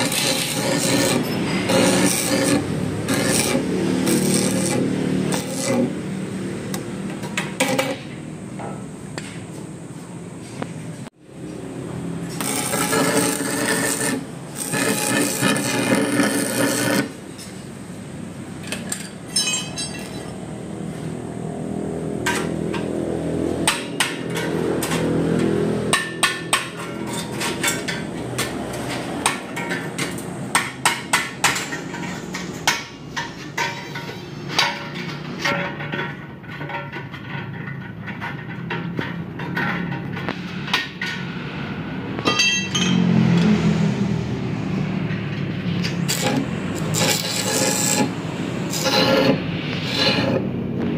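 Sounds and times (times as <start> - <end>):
loud rushing workshop noise: 0.0 - 50.9
hammer striking metal pipe: 23.6 - 28.6, 42.2 - 43.1.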